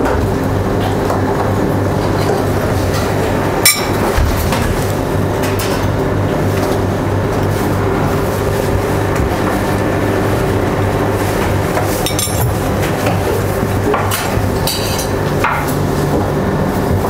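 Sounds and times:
kitchen equipment humming: 0:00.0 - 0:17.0
dishes clinking: 0:03.6 - 0:04.6, 0:12.0 - 0:12.6.

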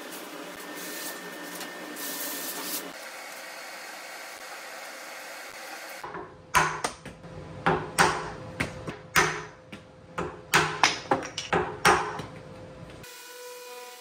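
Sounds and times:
mallet knocking wooden blocks: 0:06.1 - 0:12.3.

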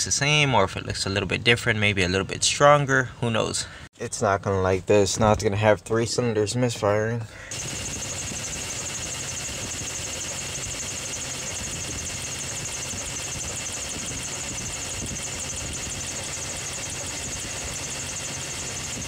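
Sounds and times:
misfiring engine idling: 0:07.5 - 0:19.0.

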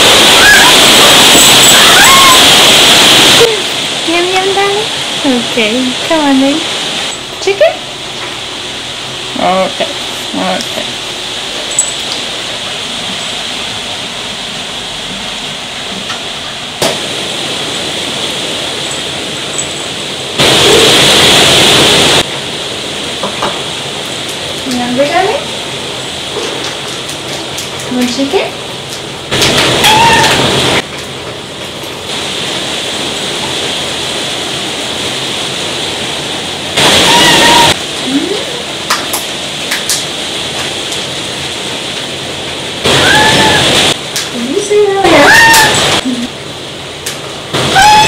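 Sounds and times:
heavy rain hissing: 0:00.0 - 0:48.0
cat meowing: 0:29.8 - 0:30.4, 0:37.0 - 0:37.8, 0:43.0 - 0:43.7, 0:45.2 - 0:45.9, 0:47.7 - 0:48.0.

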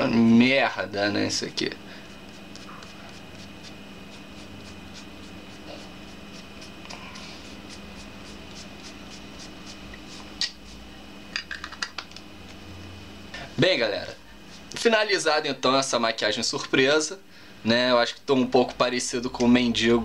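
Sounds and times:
low room hum: 0:00.0 - 0:20.0
fingers patting makeup on face: 0:02.1 - 0:10.8, 0:11.4 - 0:12.3.

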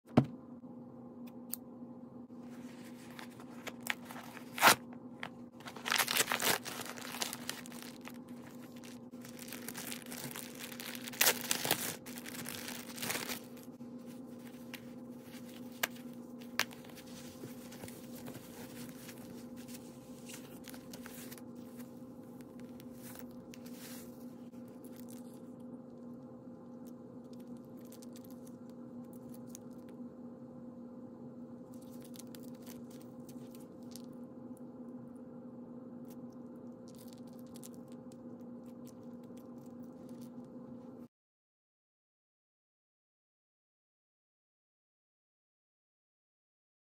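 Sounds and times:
low steady hum: 0:00.1 - 0:41.1
paper and plastic crinkling: 0:02.5 - 0:22.0.

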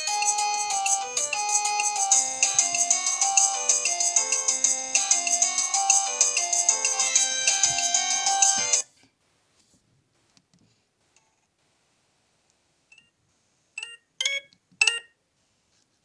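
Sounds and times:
polyphonic phone ringtone: 0:00.0 - 0:08.8.

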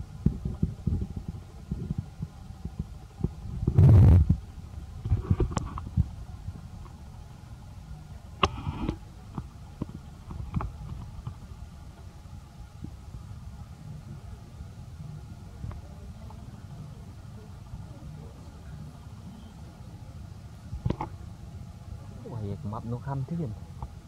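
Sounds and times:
rumbling and thumping on microphone: 0:00.0 - 0:07.0, 0:08.4 - 0:12.1.

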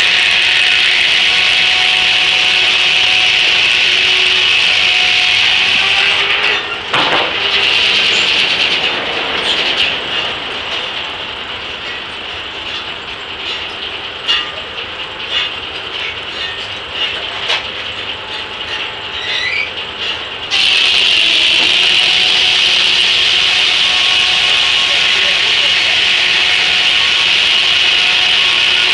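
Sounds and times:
clicks and clanks of saw carriage: 0:05.8 - 0:20.8.

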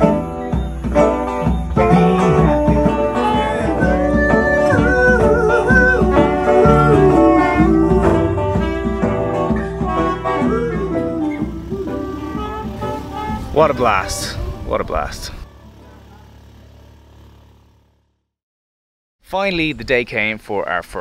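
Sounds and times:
live band music: 0:00.0 - 0:14.6.

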